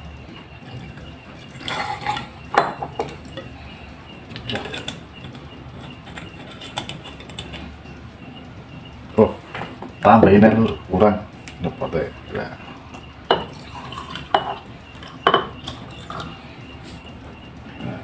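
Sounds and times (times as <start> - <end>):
glass clinking and clattering: 0.7 - 3.5, 4.4 - 7.6, 12.9 - 16.3.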